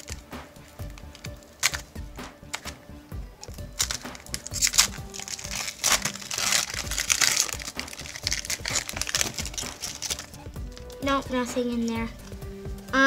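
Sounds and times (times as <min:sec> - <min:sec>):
card pack wrapper crinkling and tearing: 0:00.0 - 0:02.8, 0:03.4 - 0:11.0.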